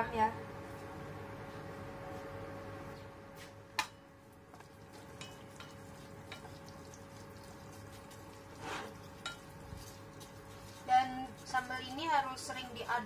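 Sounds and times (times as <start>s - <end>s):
faint sizzle in oil: 4.3s - 13.0s
chopsticks scraping a saucepan: 4.9s - 12.1s.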